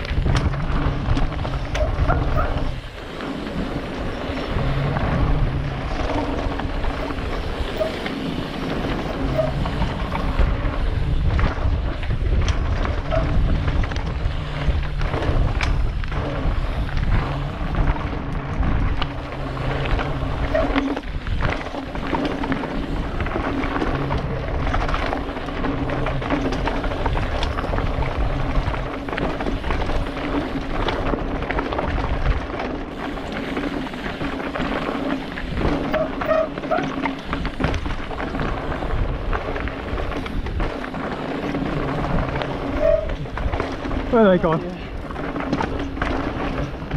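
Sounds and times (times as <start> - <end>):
wind on microphone: 0.0 - 31.0
bike knocks and rattles: 0.0 - 46.9
bike rumble: 0.0 - 46.9.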